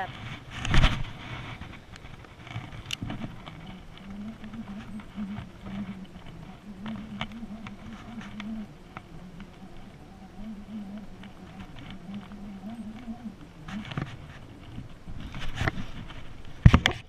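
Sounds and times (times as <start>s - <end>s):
reel clicks: 1.6s - 17.0s
fishing reel whirring: 2.6s - 16.6s.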